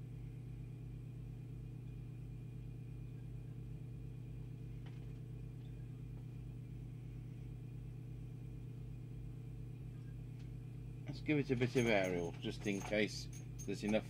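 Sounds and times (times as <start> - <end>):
low mains hum: 0.0 - 14.0.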